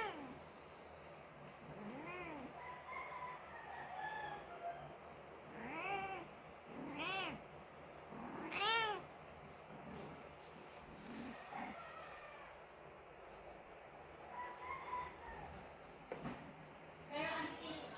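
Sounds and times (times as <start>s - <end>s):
cat meowing: 1.8s - 2.6s, 5.5s - 7.4s, 8.1s - 9.1s.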